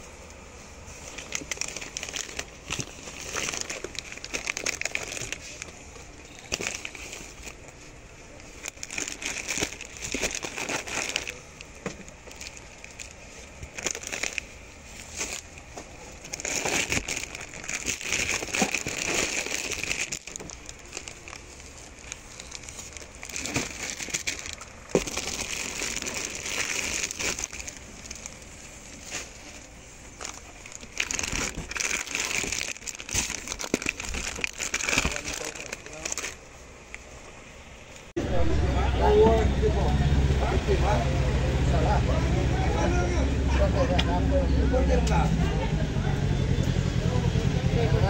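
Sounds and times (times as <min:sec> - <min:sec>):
plastic wrappers crinkling: 0:00.7 - 0:37.4
cardboard box rustling: 0:01.0 - 0:05.8, 0:08.6 - 0:36.4.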